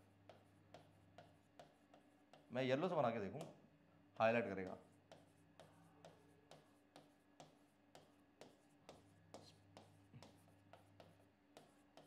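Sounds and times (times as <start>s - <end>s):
pen tapping on touchscreen: 0.2s - 2.5s, 4.6s - 12.0s.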